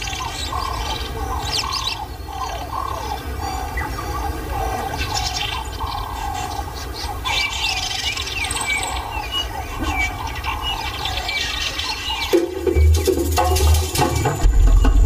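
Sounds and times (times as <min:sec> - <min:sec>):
steady low rumble: 0:13.6 - 0:15.0.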